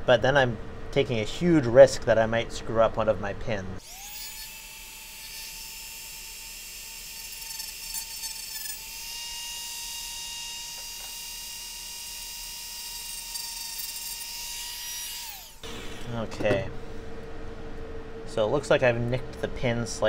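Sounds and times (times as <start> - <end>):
rotary tool cutting plastic: 3.8 - 15.6.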